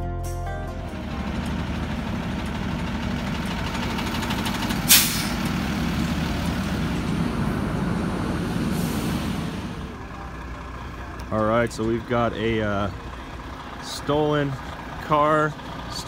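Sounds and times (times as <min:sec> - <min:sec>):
diesel trucks running: 0:00.0 - 0:16.0
air brake hiss: 0:04.9 - 0:05.5, 0:08.6 - 0:09.6.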